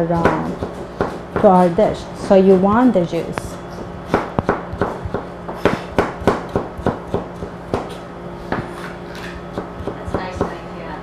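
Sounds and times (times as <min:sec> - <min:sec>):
knife chopping on plastic board: 0:04.1 - 0:08.7, 0:09.5 - 0:10.6.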